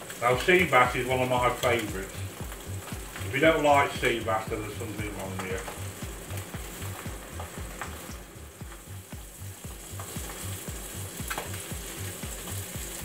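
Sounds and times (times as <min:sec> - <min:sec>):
fish sizzling in a pan: 0:00.0 - 0:13.0
wooden spatula tapping a pan: 0:01.6 - 0:03.3, 0:05.1 - 0:13.0.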